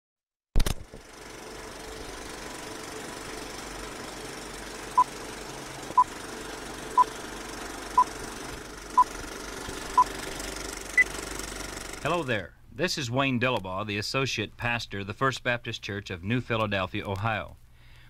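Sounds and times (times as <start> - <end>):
rattling whirr and hiss: 0.9 - 12.6.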